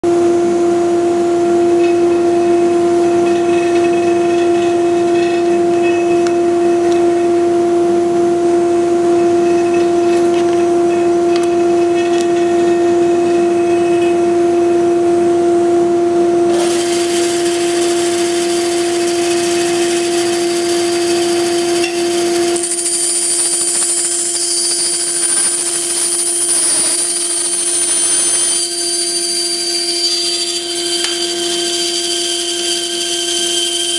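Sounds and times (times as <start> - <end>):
bandsaw humming: 16.5 - 33.9
thin high whistling: 16.6 - 33.9.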